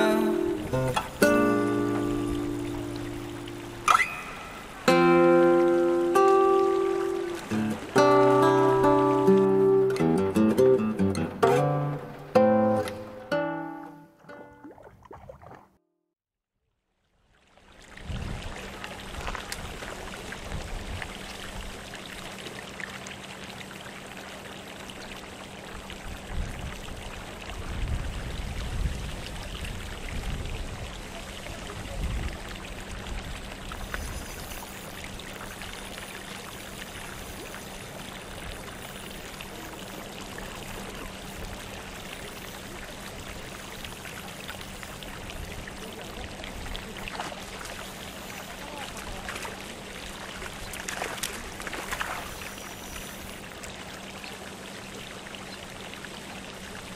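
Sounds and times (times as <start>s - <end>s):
running water: 0.0s - 15.7s, 17.2s - 56.9s
wind rumble on microphone: 17.8s - 21.8s, 25.9s - 35.3s.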